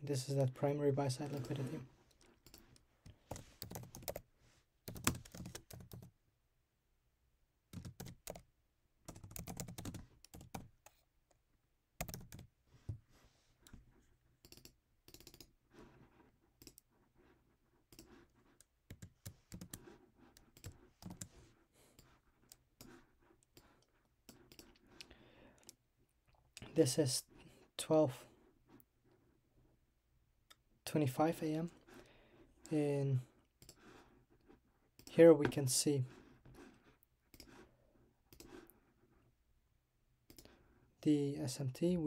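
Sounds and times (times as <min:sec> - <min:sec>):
typing on a keyboard: 0:03.3 - 0:04.2, 0:04.9 - 0:06.1, 0:07.7 - 0:08.5, 0:09.1 - 0:10.7, 0:12.0 - 0:12.5, 0:14.4 - 0:15.5, 0:18.9 - 0:21.3, 0:23.6 - 0:24.7.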